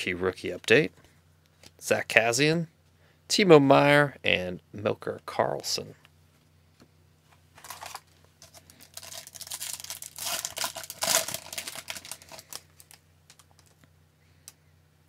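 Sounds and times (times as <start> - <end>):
foil wrapper crackling: 7.6 - 13.8.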